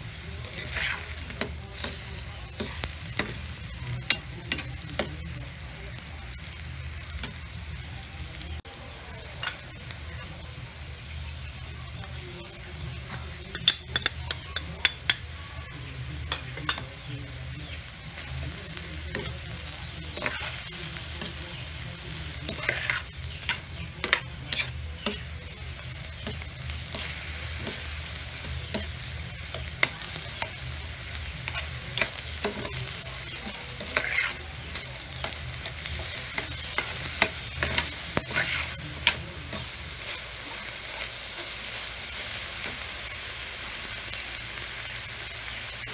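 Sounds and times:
meat sizzling in a wok: 0.0s - 45.9s
metal spoon scraping a pan: 0.4s - 5.1s, 19.0s - 40.4s.

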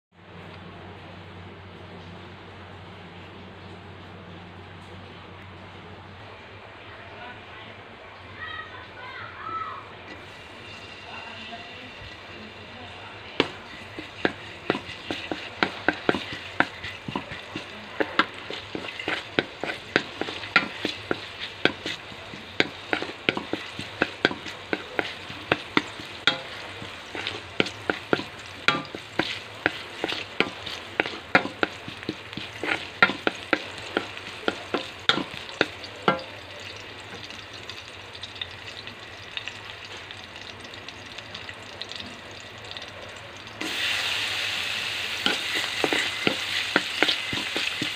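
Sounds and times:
garlic sizzling in oil: 10.0s - 47.9s.

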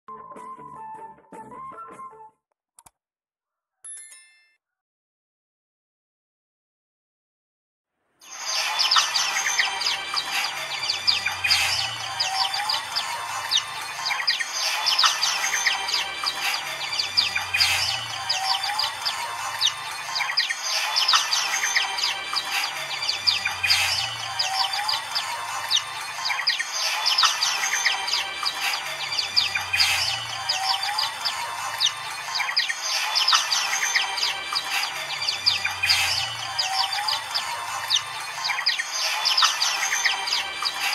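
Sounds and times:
flock of birds chirping and trilling: 8.2s - 40.9s.

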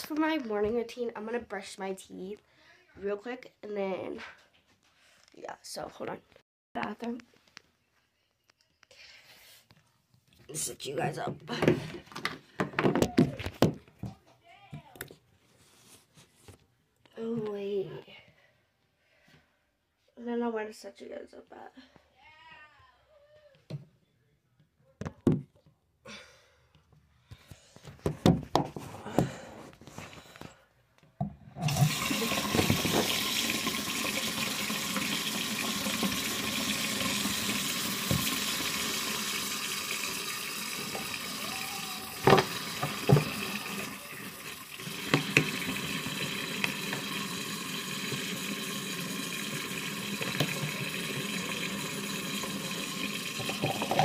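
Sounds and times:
tap water running into basin: 31.6s - 54.0s.

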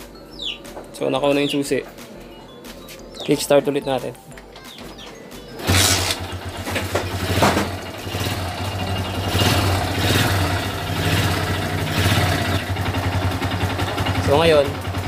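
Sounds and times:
motorcycle engine kick-started: 5.6s - 15.0s.

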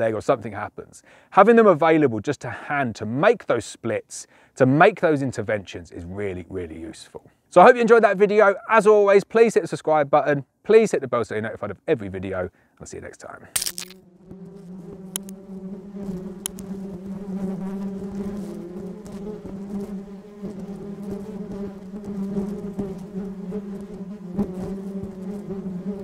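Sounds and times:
bees humming: 13.6s - 26.0s.

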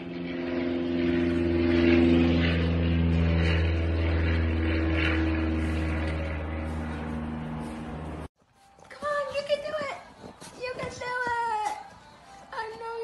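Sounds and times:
engine-like drone: 0.0s - 8.3s.

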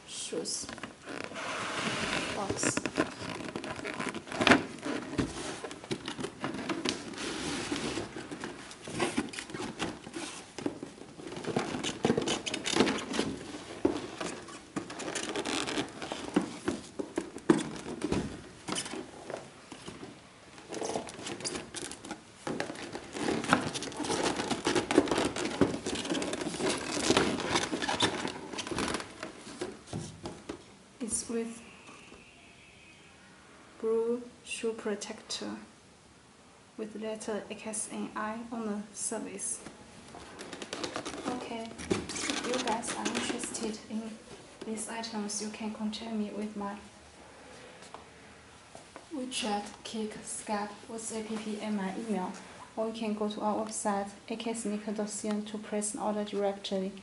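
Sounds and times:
plastic sheet rustling: 1.0s - 30.6s, 40.1s - 44.6s
cardboard box opening: 1.2s - 29.8s, 40.2s - 43.7s.

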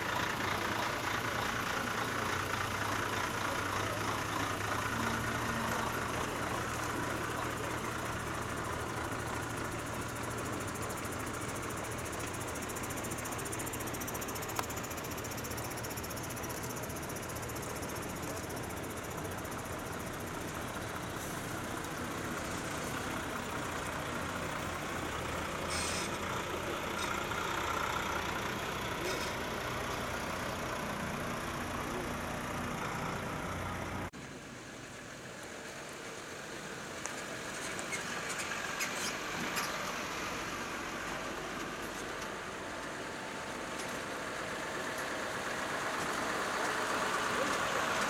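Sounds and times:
distant truck engine approaching: 0.0s - 34.1s
truck diesel engine passing: 0.0s - 34.1s, 35.8s - 48.0s.

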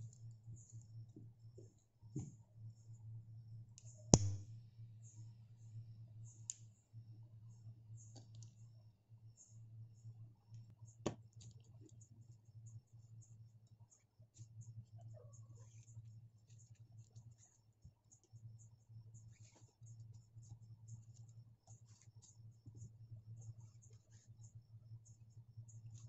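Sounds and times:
steady low hum: 0.0s - 26.0s
sharp click: 4.2s - 4.5s
small clicks and handling noises: 8.0s - 8.6s, 10.5s - 12.1s.

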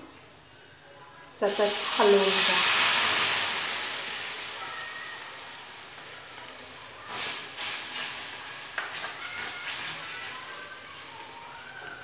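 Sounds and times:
gravy sizzling in hot oil: 1.4s - 12.0s
wooden spatula scraping: 7.1s - 12.0s.

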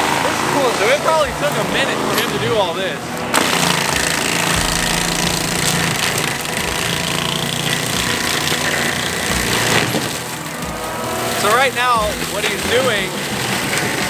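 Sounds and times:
forestry mulcher grinding wood: 0.1s - 14.0s
low engine hum: 3.8s - 10.9s.

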